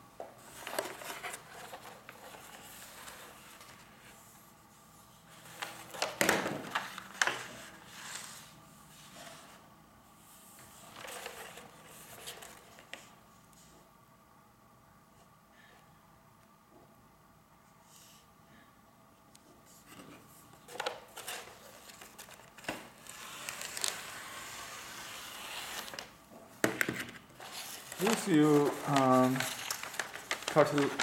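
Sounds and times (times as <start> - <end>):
paper rustling and crinkling: 0.4 - 4.4, 5.3 - 9.6, 10.6 - 13.2, 19.8 - 31.0.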